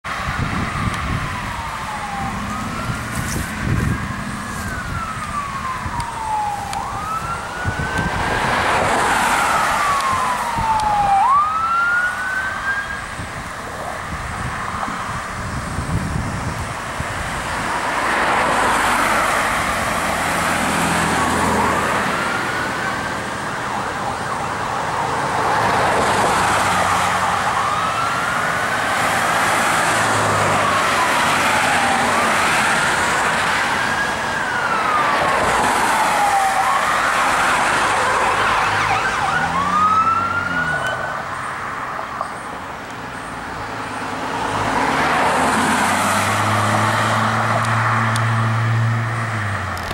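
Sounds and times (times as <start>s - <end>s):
fire engine siren wailing: 0.1s - 42.2s, 43.2s - 49.9s.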